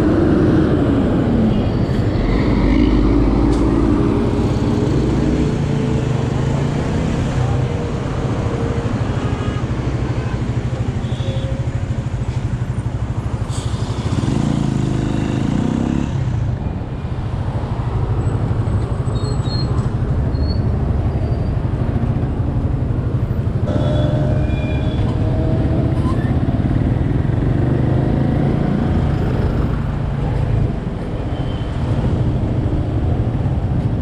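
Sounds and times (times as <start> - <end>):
city traffic: 0.0 - 34.0.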